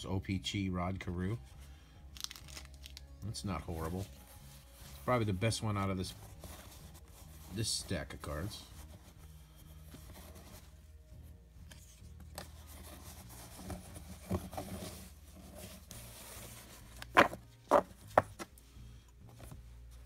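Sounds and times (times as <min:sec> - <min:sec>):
cards being handled: 0:02.1 - 0:05.2, 0:11.6 - 0:18.6.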